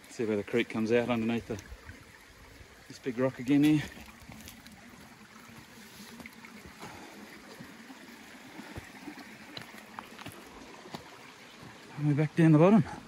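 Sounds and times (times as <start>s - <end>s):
creek water trickling: 0.0s - 13.0s.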